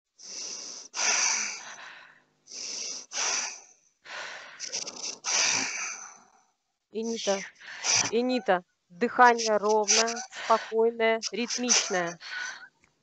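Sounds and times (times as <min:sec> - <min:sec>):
person breathing hard and fast: 0:00.2 - 0:06.3, 0:07.5 - 0:08.2, 0:09.8 - 0:10.8, 0:11.5 - 0:12.7.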